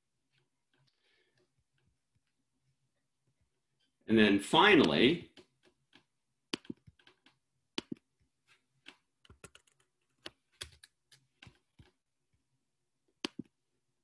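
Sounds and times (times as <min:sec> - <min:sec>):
keyboard keys clicking: 0:08.9 - 0:11.6.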